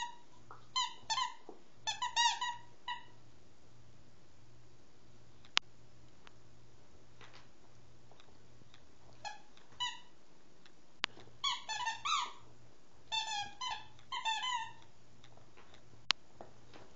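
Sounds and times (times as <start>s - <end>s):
squeaky toy squeaking: 0.0s - 3.2s, 9.2s - 10.1s, 11.4s - 12.5s, 13.1s - 14.9s.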